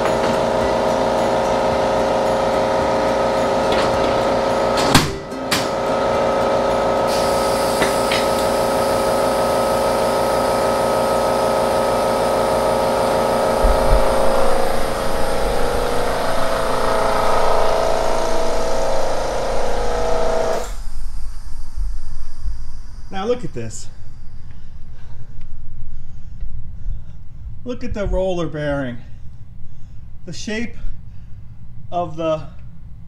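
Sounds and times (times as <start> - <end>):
air compressor motor humming: 0.0 - 25.1.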